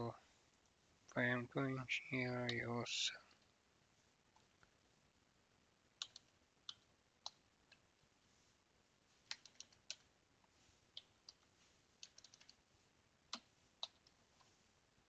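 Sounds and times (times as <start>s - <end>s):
computer keyboard keystrokes: 6.0s - 7.4s, 9.3s - 10.0s, 12.0s - 12.6s, 13.3s - 14.2s.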